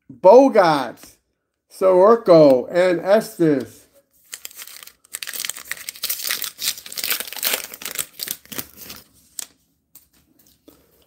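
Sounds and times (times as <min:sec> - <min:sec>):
wrapper crinkling as torn open: 0:04.2 - 0:09.6.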